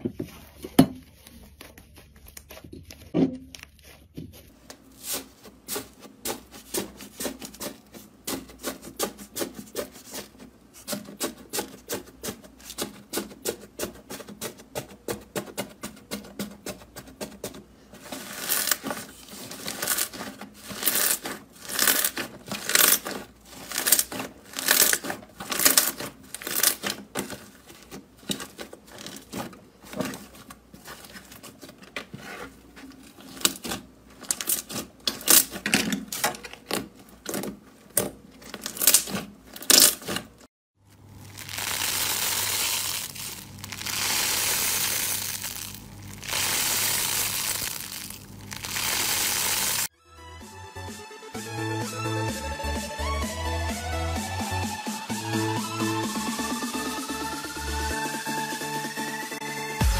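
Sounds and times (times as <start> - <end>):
crunchy slime crackling: 18.0 - 31.6, 38.4 - 40.3, 41.0 - 49.9.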